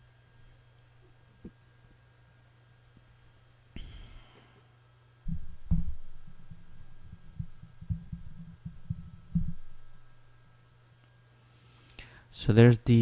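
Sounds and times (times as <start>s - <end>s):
low hum: 0.0s - 11.3s
low thuds and rumbles: 5.3s - 9.8s.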